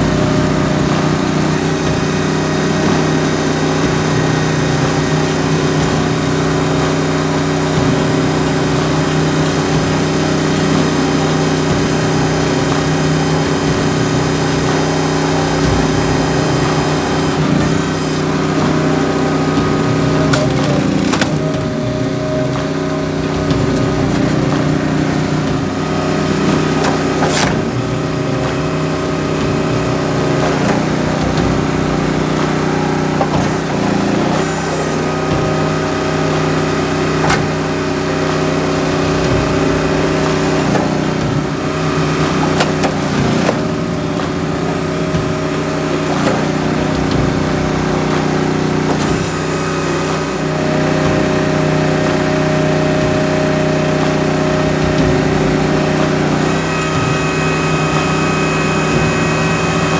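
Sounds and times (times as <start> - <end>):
log splitter engine running: 0.0 - 59.9
wood splitting crack: 20.0 - 28.9.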